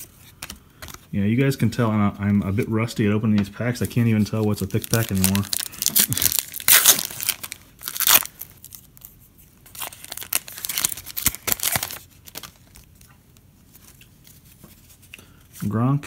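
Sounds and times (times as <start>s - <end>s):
foil wrapper crinkling and tearing: 3.8s - 13.0s.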